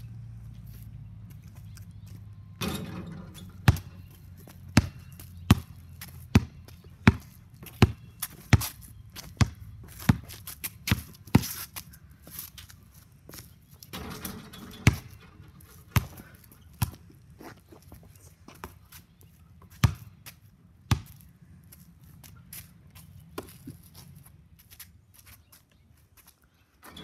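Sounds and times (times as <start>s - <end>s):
basketball bouncing on concrete: 2.6s - 11.7s, 13.3s - 15.2s, 15.8s - 17.0s, 19.7s - 21.2s.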